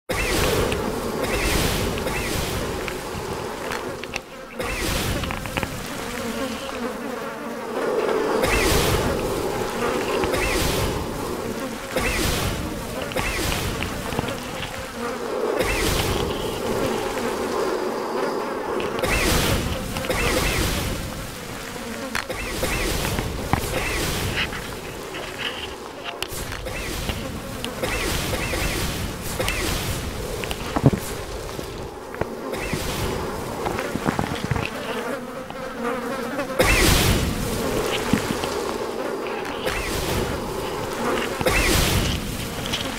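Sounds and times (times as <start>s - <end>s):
wavering buzz: 0.1s - 42.9s
short rushes of noise: 7.7s - 35.3s.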